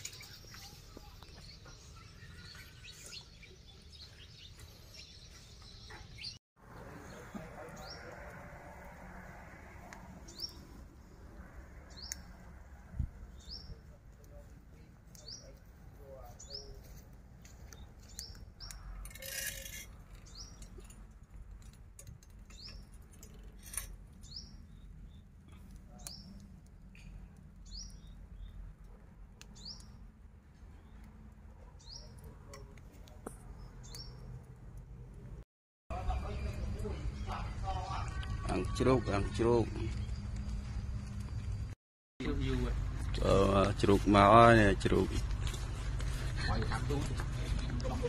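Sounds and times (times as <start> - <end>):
bird chirping: 0.0 - 8.1, 27.0 - 28.7, 29.4 - 30.0.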